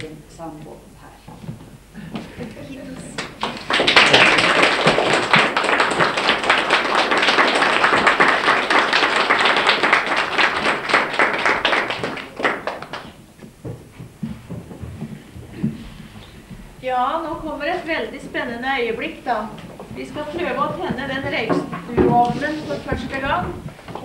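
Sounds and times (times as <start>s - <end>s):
crowd applauding: 3.1s - 13.2s.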